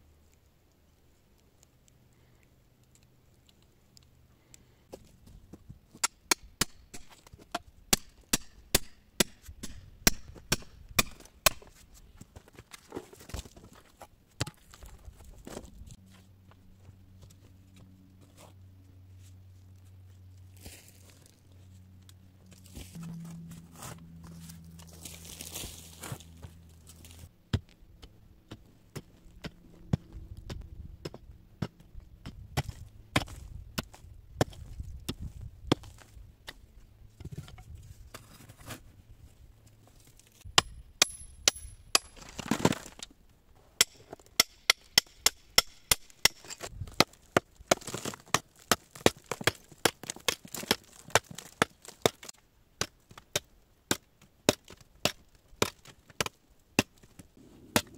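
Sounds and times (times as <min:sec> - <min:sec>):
hand tools striking earth and rock: 0:05.9 - 0:11.8, 0:28.5 - 0:36.6, 0:40.4 - 0:43.1, 0:43.8 - 0:57.9.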